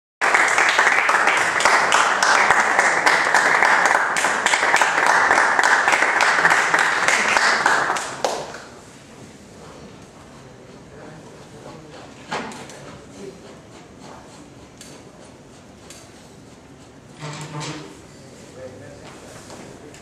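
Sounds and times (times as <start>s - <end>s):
audience applauding: 0.2s - 8.7s.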